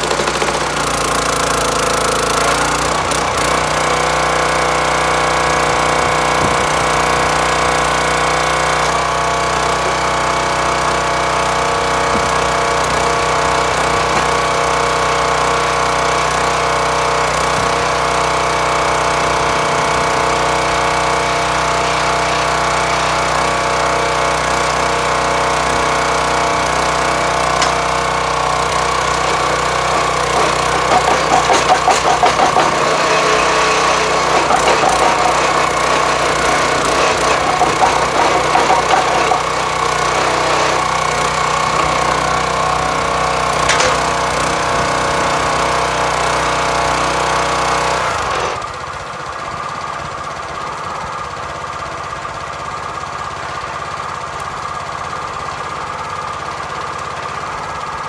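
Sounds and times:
log splitter engine running: 0.0 - 58.0
rapid pulsing: 29.2 - 39.8.

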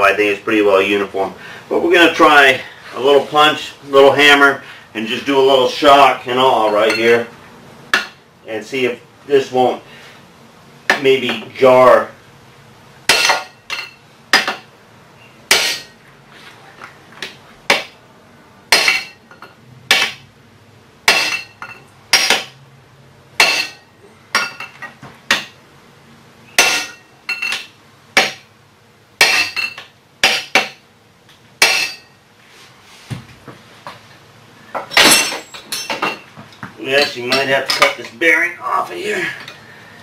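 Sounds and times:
hammer striking steel punch: 13.1 - 14.7, 15.5 - 15.9, 18.7 - 19.2, 19.9 - 20.2, 21.1 - 21.5, 22.1 - 22.5, 23.4 - 24.6, 26.6 - 28.4, 29.2 - 30.8, 31.6 - 32.1.

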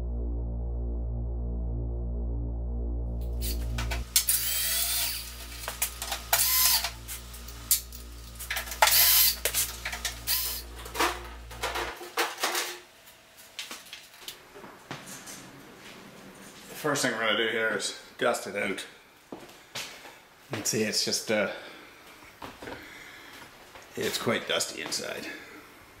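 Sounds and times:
low droning music: 0.0 - 4.2
cordless drill whining: 3.4 - 7.0, 8.8 - 9.6, 10.2 - 10.7.

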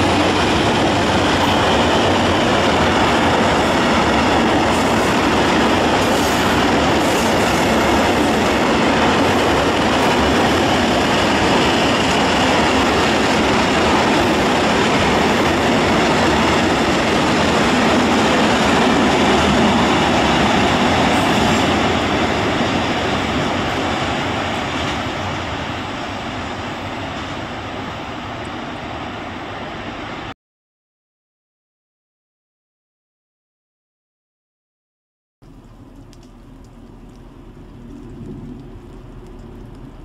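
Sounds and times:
train wheels on rails: 0.0 - 30.3.

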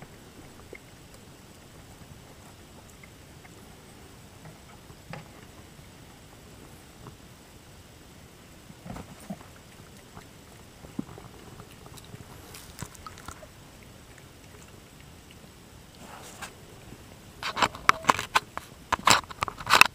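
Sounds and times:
kittens scuffling on carpet: 11.9 - 13.4.

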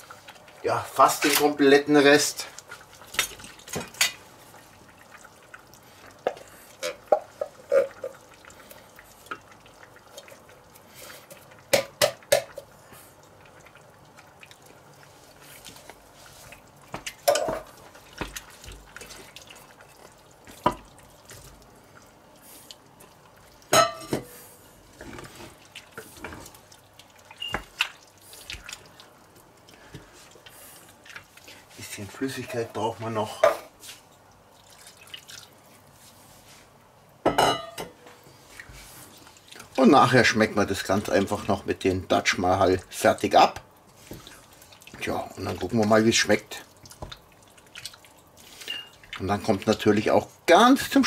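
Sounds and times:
wooden spoon stirring food in pot: 0.0 - 51.0.

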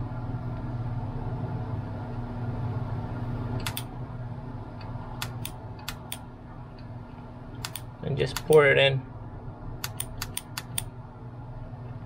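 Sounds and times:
soldering gun humming: 0.0 - 8.7, 9.4 - 12.0
sharp clicks: 3.6 - 3.9, 5.2 - 6.2, 7.6 - 8.7, 9.8 - 10.9.

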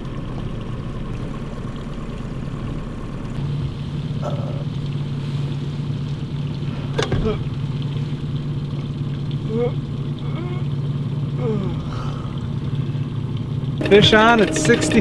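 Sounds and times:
outboard motor running: 0.0 - 15.0.

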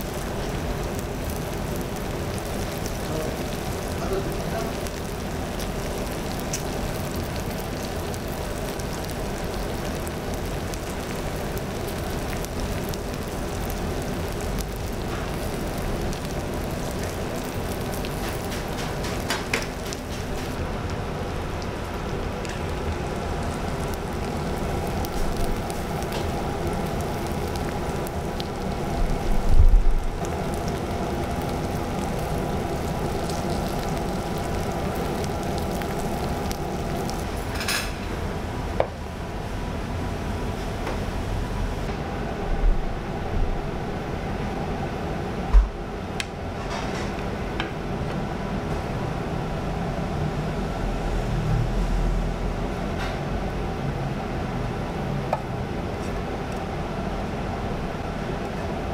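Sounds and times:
meat sizzling on a griddle: 0.0 - 20.7, 21.3 - 38.0.

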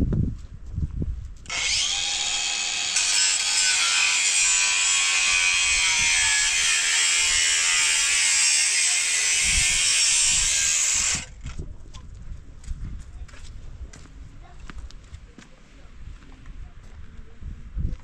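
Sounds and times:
power tool high-pitched whine: 1.5 - 11.3.

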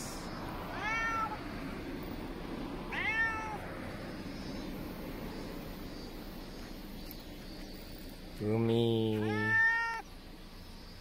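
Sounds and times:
steady background noise: 0.0 - 11.0
cat meowing: 0.7 - 1.4, 2.9 - 3.6, 9.2 - 10.0.

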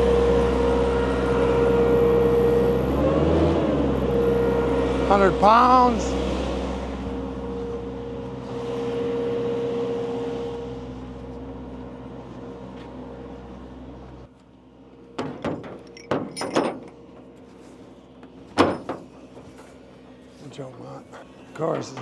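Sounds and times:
air compressor engine humming: 0.0 - 22.0
sharp metal clanks: 15.2 - 17.2.

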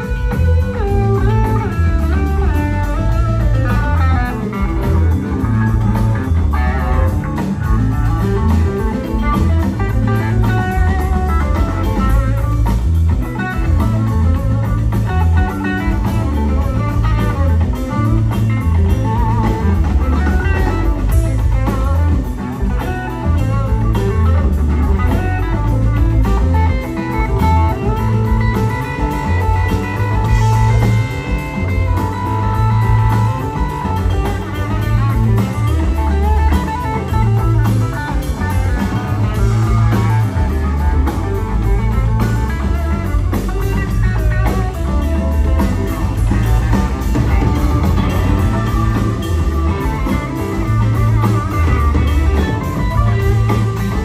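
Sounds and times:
blues-rock band playing: 0.0 - 54.0
held lead guitar notes: 0.0 - 54.0.

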